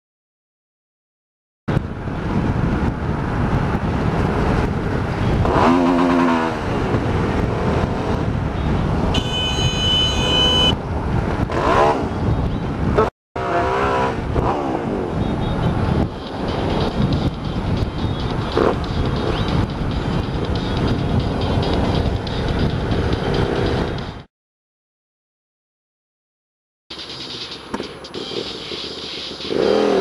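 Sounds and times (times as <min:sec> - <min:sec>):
wind rush: 0:01.7 - 0:13.1, 0:13.9 - 0:24.3
motorcycle engine revving: 0:01.8 - 0:09.3, 0:10.1 - 0:24.2, 0:27.2 - 0:30.0.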